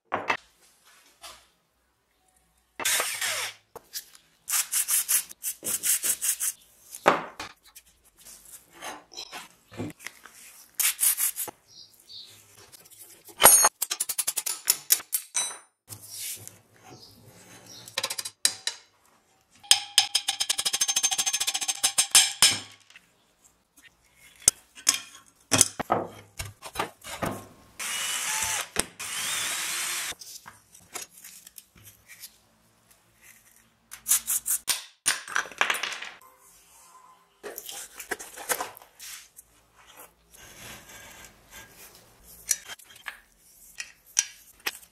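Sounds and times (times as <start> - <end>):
metal parts knocking and scraping: 19.6 - 23.0
power tool running: 27.8 - 30.2.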